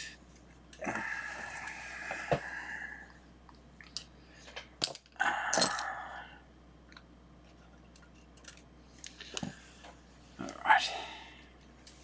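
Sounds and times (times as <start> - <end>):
rustling and scraping of tools: 7.4 - 10.6.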